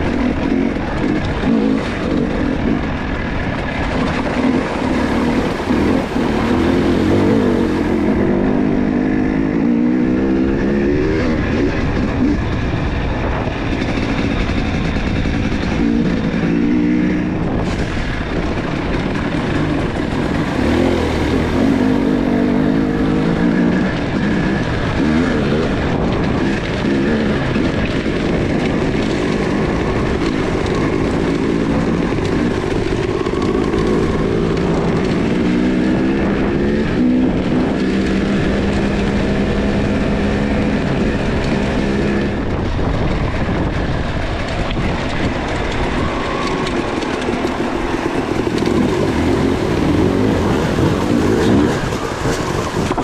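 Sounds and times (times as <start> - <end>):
dirt bike engine running: 0.0 - 53.0
wind and tyre noise: 0.0 - 53.0.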